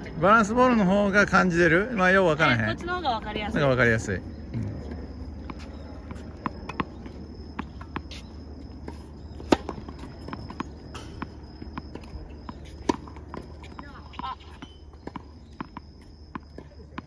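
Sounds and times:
balls bouncing on hard court: 4.6 - 17.0
racket hitting tennis ball: 5.3 - 17.0.

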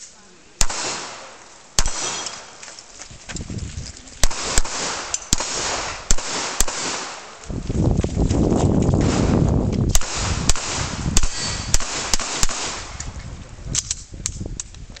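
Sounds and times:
pistol shots: 0.6 - 2.6, 4.2 - 7.4, 9.0 - 13.2.

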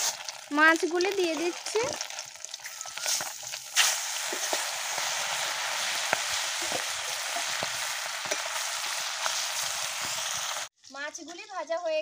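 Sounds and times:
fish sizzling in hot oil: 0.0 - 12.0
loud hiss of fish entering oil: 3.1 - 10.7.

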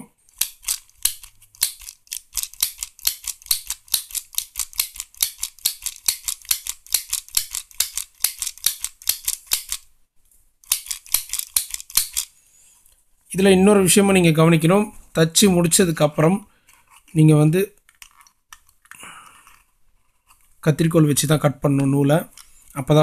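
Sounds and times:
mini sewing machine clicking: 0.3 - 9.8.

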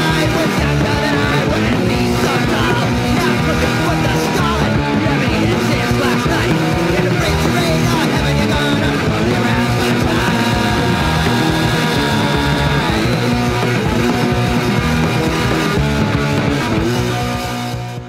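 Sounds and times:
electric guitar: 0.0 - 18.0
punk rock band playing: 0.0 - 18.0.

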